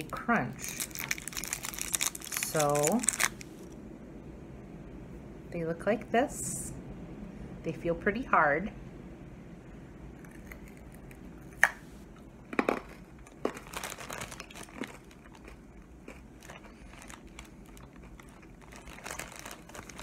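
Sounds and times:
brittle cracking when bitten: 0.6s - 3.5s
crunching chewing: 0.6s - 3.5s, 10.2s - 11.2s, 12.5s - 20.0s.

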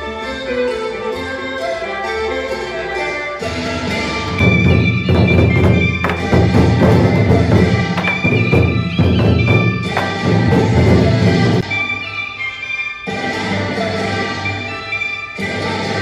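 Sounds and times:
held melody: 0.0s - 16.0s
loud fast percussion: 3.9s - 11.6s.

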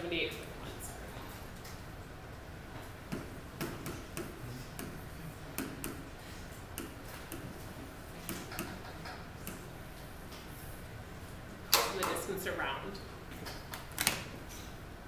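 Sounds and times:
stylus tapping on glass screen: 6.8s - 7.5s.

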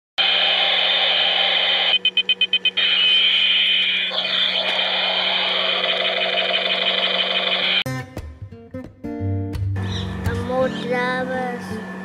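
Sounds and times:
toy helicopter whirring buzz: 0.3s - 7.8s.

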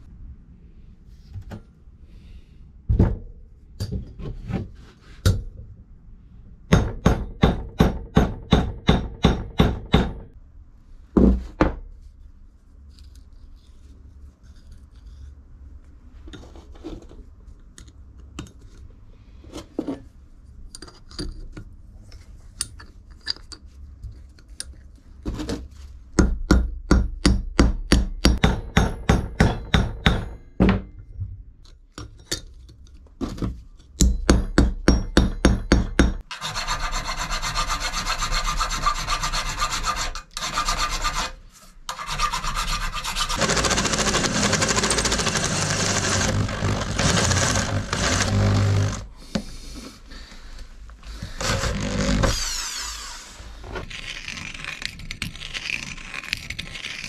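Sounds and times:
hand tool strokes: 36.3s - 49.0s
steady abrasive rubbing: 42.0s - 49.1s, 51.2s - 53.6s.

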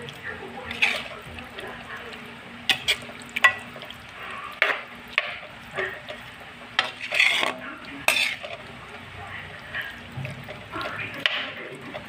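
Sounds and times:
food sizzling: 0.0s - 12.0s
metal spatula scraping a wok: 0.7s - 1.3s, 2.7s - 3.6s, 4.5s - 8.7s.

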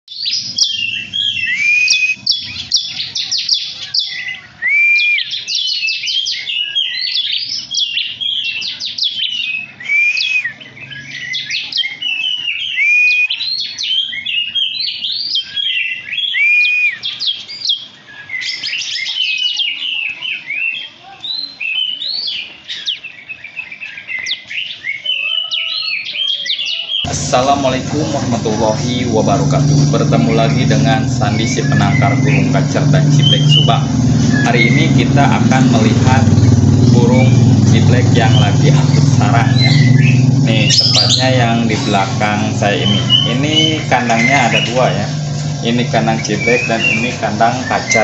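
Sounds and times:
small songbirds chirping: 0.0s - 48.0s
swooping whistled bird note: 0.6s - 2.7s, 38.2s - 48.0s.

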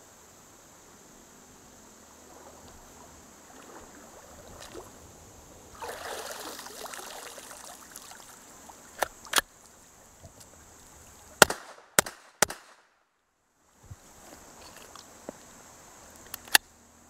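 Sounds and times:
water splashing: 2.1s - 11.4s
sharp gunshots: 11.4s - 12.9s
metallic clicks of gun action: 16.2s - 16.7s.

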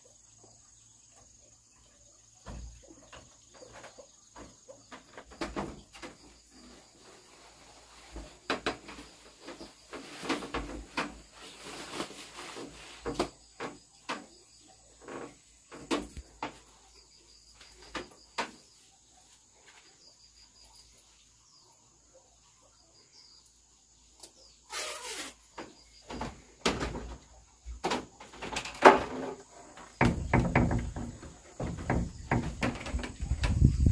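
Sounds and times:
insect drone: 24.6s - 33.9s
door: 25.6s - 33.8s
footsteps on wooden boards: 25.7s - 33.9s.

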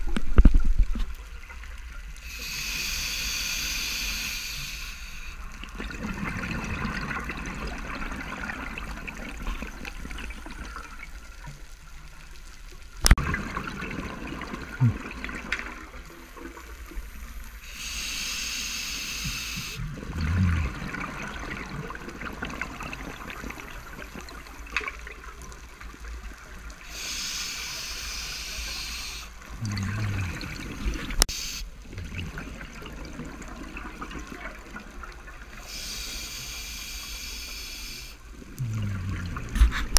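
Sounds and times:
steady underwater hiss: 1.2s - 39.9s
diver breathing through regulator: 2.3s - 5.4s
gurgling exhaust bubbles: 13.2s - 15.5s, 19.8s - 24.4s, 29.5s - 34.2s, 38.4s - 39.9s.

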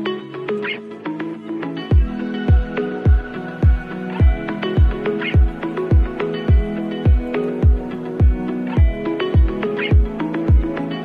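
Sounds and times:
held synth notes: 0.0s - 11.0s
deep kick drum beat: 1.9s - 10.7s.

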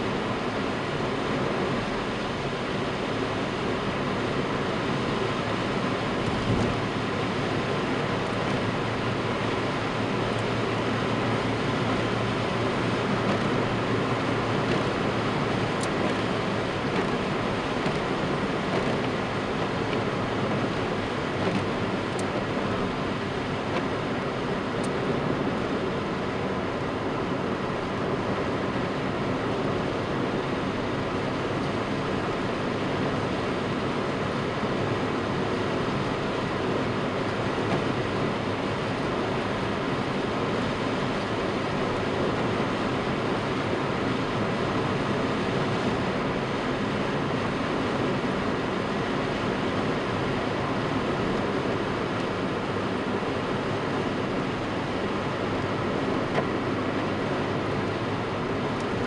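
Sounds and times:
car engine cruising: 0.0s - 59.0s
tyres on wet asphalt: 0.0s - 59.0s.

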